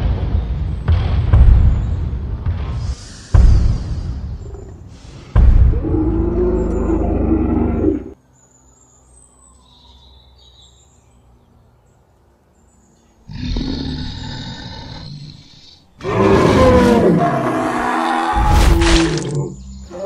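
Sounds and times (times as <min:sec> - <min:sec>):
dinosaur roar: 0:05.6 - 0:08.2, 0:13.3 - 0:20.0
faint bird chirps: 0:06.0 - 0:16.0.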